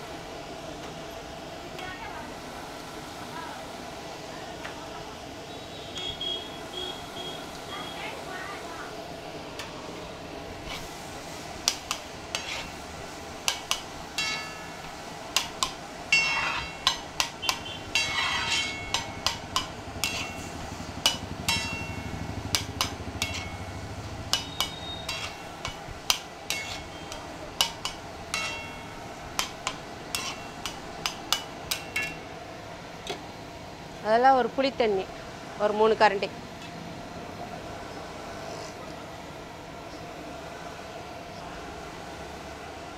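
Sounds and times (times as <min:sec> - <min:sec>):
spatula scraping metal griddle: 0:10.6 - 0:14.7, 0:15.4 - 0:32.2.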